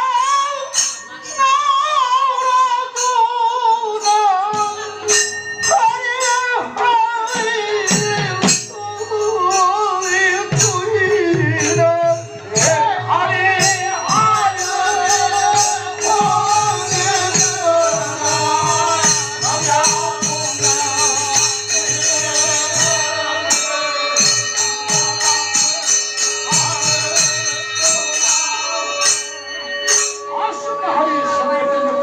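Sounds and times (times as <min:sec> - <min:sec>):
men singing: 0:00.0 - 0:29.4
metal cymbals ringing: 0:07.3 - 0:31.6.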